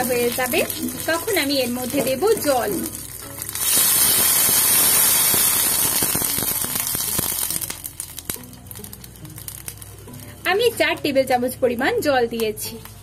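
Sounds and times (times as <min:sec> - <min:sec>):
water hissing in hot oil: 0:00.0 - 0:10.4.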